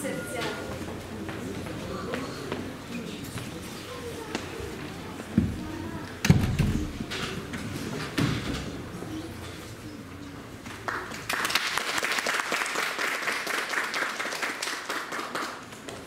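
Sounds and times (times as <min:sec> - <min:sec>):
audience applauding: 0:10.8 - 0:16.0.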